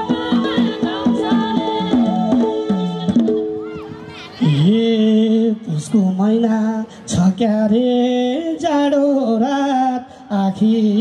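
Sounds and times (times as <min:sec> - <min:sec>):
person singing folk song: 0:04.4 - 0:11.0.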